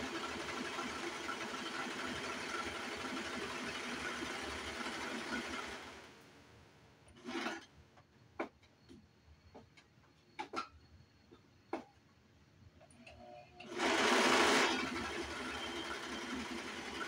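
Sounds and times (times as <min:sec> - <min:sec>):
serger sewing machine running: 0:00.0 - 0:06.1, 0:07.2 - 0:07.6, 0:13.6 - 0:17.0.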